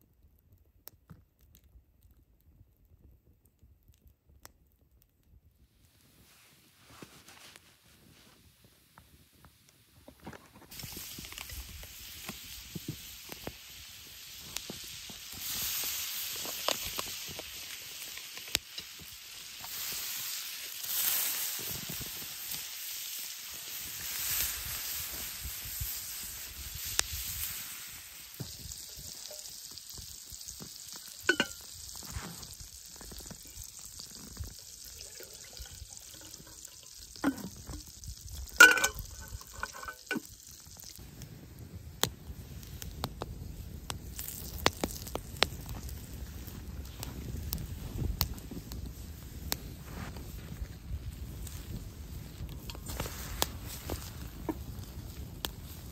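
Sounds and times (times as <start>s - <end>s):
meat sizzling in a frying pan: 10.7s - 55.9s
kettle knocking on fire: 31.2s - 31.7s, 35.1s - 37.9s, 38.5s - 40.3s.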